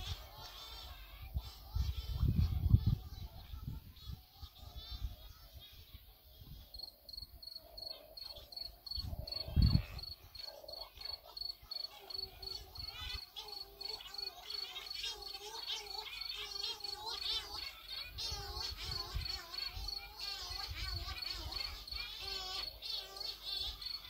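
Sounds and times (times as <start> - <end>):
cricket chirping: 6.7 - 24.0.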